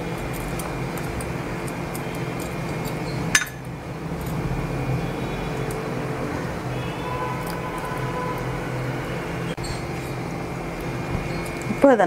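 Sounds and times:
steady background hum: 0:00.0 - 0:12.0
spoon clinking against pot: 0:01.9 - 0:03.7.

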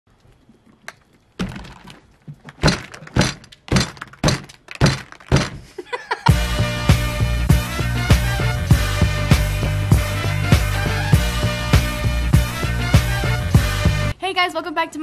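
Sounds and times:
hollow thunks of pumpkins: 0:01.4 - 0:05.8
upbeat music: 0:06.3 - 0:14.2.

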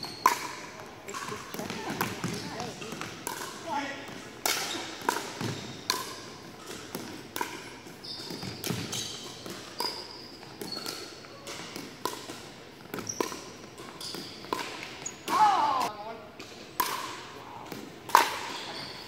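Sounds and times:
sneaker squeaks on court: 0:00.0 - 0:00.7, 0:04.6 - 0:06.9, 0:07.6 - 0:11.8, 0:13.0 - 0:15.3, 0:18.3 - 0:19.0.

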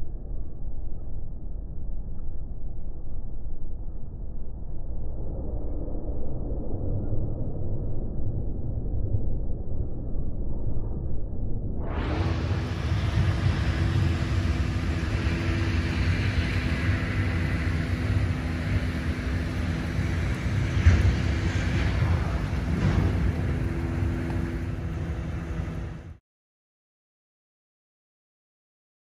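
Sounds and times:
diesel engine running under load: 0:11.9 - 0:26.2.

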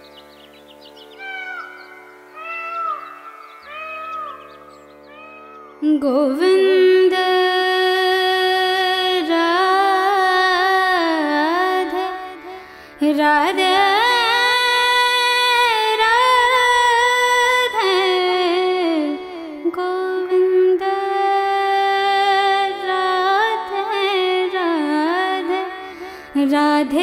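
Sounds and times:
person singing ornamented notes: 0:01.1 - 0:27.0.

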